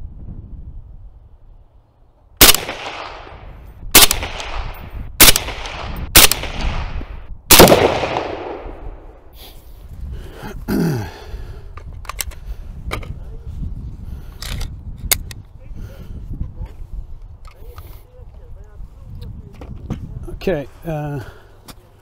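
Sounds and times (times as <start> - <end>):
rifle shots with echo: 2.4 - 9.3.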